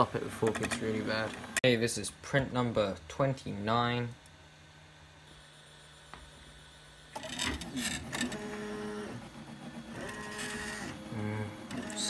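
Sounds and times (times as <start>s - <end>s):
stepper motors whining: 5.3s - 12.0s.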